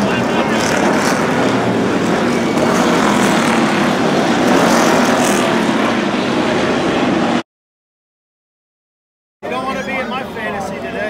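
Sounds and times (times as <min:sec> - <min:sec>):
race car engines droning: 0:00.0 - 0:07.4.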